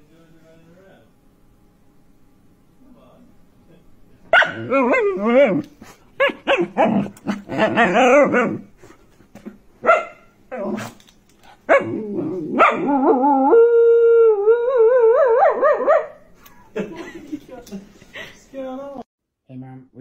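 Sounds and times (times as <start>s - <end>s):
dog barking: 4.3s - 5.2s, 6.2s - 8.6s, 9.8s - 10.3s, 11.7s - 12.9s, 15.4s - 16.2s
dog yowling: 4.3s - 8.7s, 9.8s - 10.9s, 11.7s - 16.2s
dog howling: 4.4s - 8.7s, 10.5s - 10.9s, 11.7s - 16.2s.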